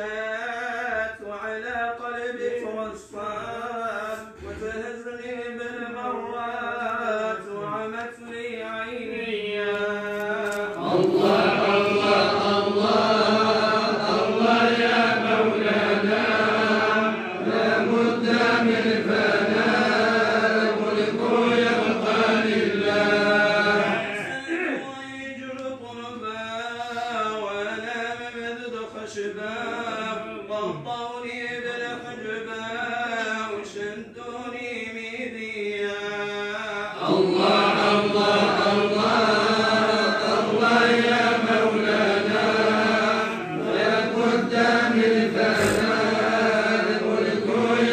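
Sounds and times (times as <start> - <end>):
men chanting: 0.0 - 47.9
single voice singing: 37.0 - 47.9.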